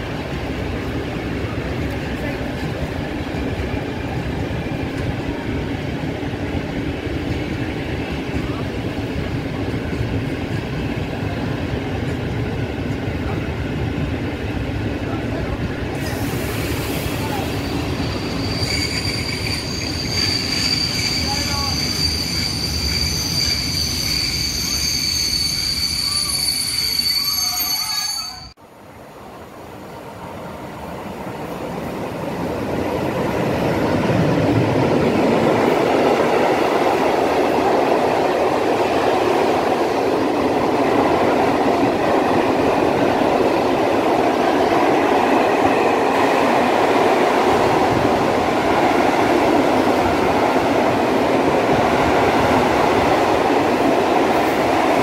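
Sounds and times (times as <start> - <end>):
freight train rolling past: 0.0 - 55.0
freight wagons squealing: 16.9 - 28.6.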